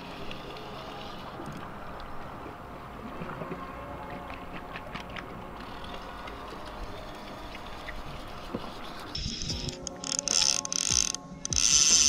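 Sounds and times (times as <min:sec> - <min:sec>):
sea water lapping: 0:00.0 - 0:11.0.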